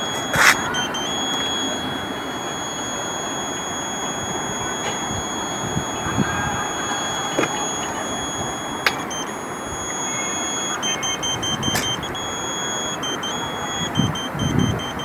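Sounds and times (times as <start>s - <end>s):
high-pitched electronic tone: 0.0s - 15.0s
rapid short beeps: 0.0s - 15.0s
sharp clicks: 8.8s - 15.0s.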